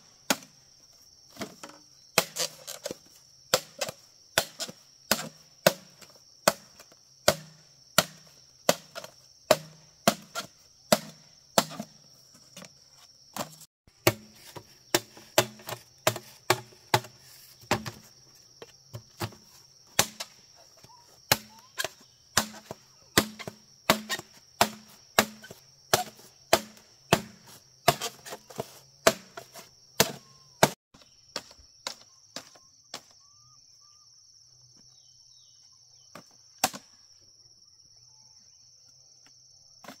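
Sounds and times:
wood being chopped: 0.3s - 0.6s, 1.3s - 12.0s, 13.4s - 18.0s, 18.9s - 19.4s, 20.0s - 20.4s, 21.3s - 33.1s, 36.1s - 36.9s.

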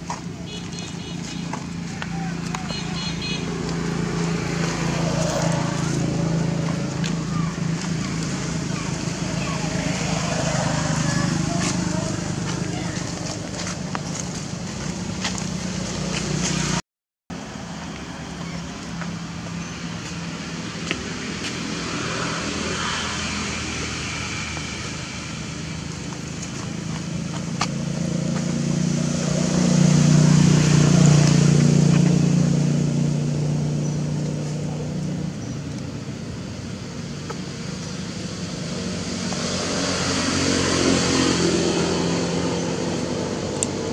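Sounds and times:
vehicle engine humming: 0.0s - 43.9s.

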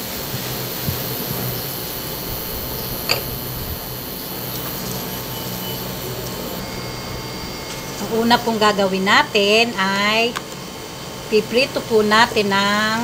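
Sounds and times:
low hum: 0.0s - 9.9s
fan whirring: 0.0s - 13.0s.

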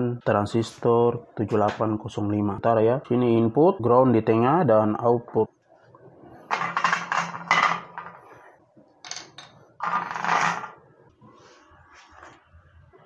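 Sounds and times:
small parts scraping and clinking: 6.4s - 8.4s, 9.0s - 10.8s.

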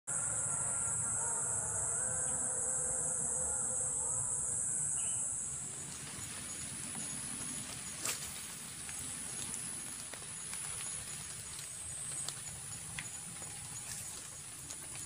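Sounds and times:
insects droning: 0.1s - 15.0s
light rain pattering: 5.5s - 15.0s.

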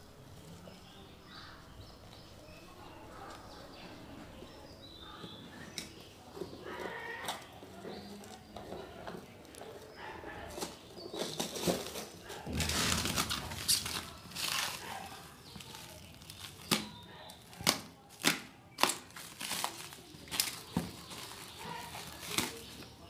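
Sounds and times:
plastic film crinkling and tearing: 10.5s - 23.0s.

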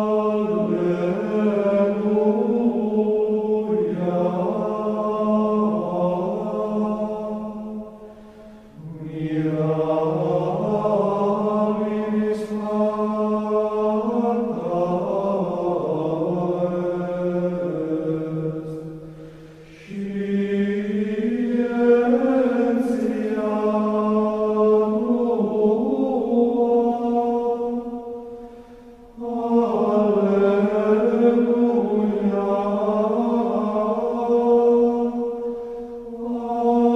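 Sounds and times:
voices chanting: 8.8s - 36.9s.

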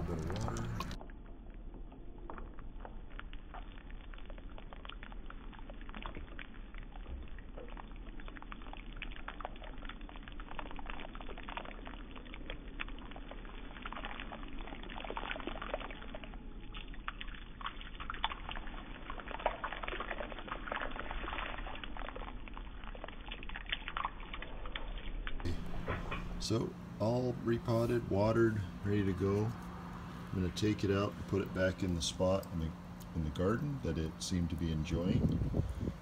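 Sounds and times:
water pouring onto soil: 0.0s - 1.0s, 8.7s - 25.1s.

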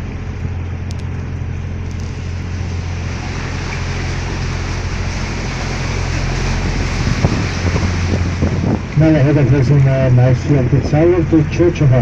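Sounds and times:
boat motor humming: 0.0s - 12.0s
wind: 0.0s - 12.0s
water hissing: 1.9s - 9.2s.

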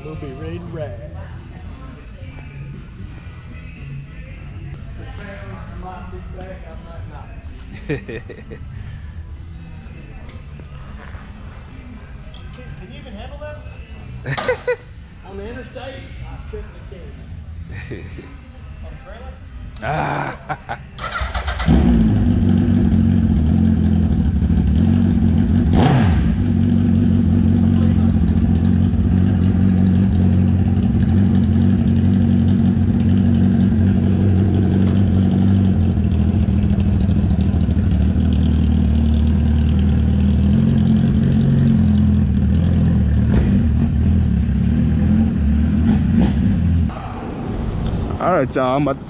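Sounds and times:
motorcycle engine idling: 21.0s - 45.2s
motorcycle engine starting: 21.0s - 46.9s.

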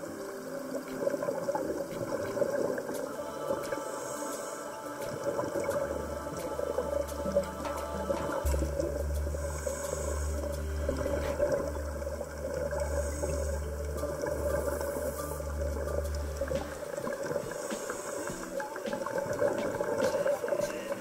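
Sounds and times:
sustained low bass note: 7.2s - 16.6s.

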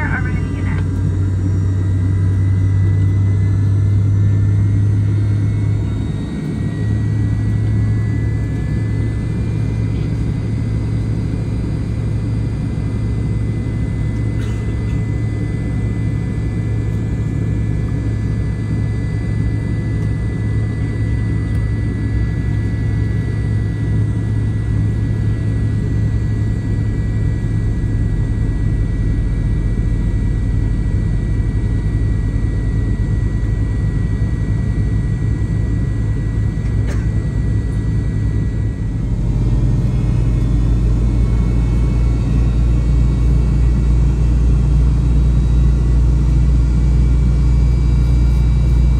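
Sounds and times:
cabin low rumble: 0.0s - 48.9s
high-pitched whine: 0.0s - 48.9s.

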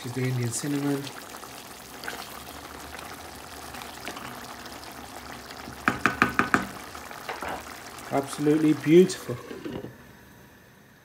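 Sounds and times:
spoon knocking on metal pan: 5.8s - 7.6s.

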